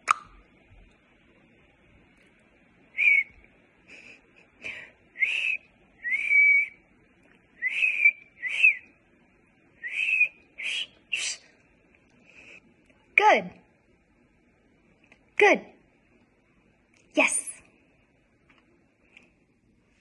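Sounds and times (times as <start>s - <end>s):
person whistling short notes: 7.6s - 8.8s, 9.8s - 11.4s.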